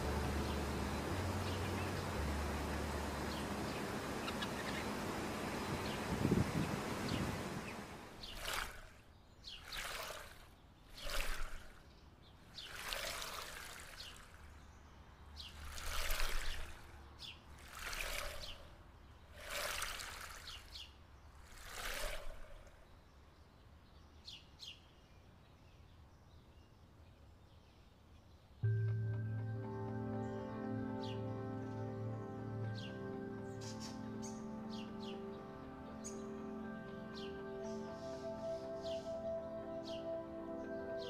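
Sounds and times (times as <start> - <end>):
water sloshing and splashing: 0.0 - 23.0.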